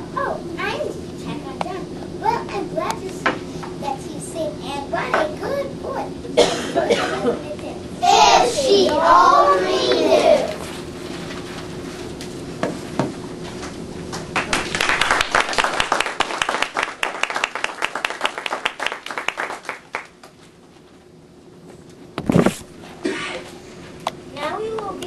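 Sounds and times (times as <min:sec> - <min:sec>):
audience clapping: 0:14.1 - 0:20.4.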